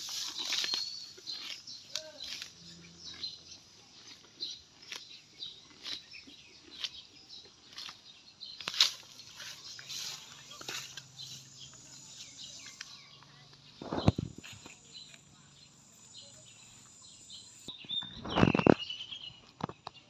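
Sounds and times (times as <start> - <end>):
cow tearing grass: 0.0 - 12.8.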